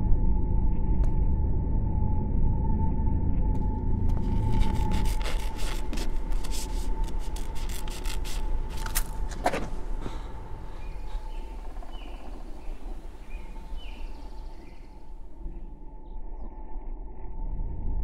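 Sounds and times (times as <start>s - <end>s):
low rumble: 0.0s - 5.3s, 8.6s - 18.0s
woodland air: 3.6s - 16.6s.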